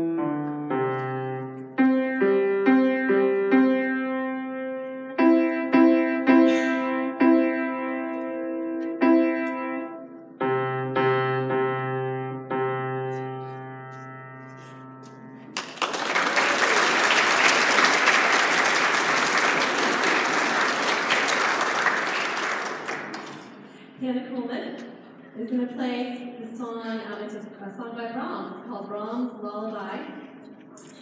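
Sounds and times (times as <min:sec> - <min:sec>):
grand piano playing: 0:00.0 - 0:23.6
audience applause: 0:15.6 - 0:23.6.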